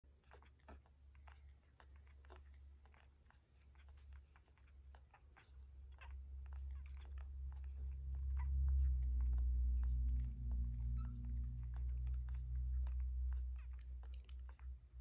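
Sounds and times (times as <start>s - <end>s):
puppies suckling: 0.0s - 15.0s
low hum: 6.2s - 15.0s.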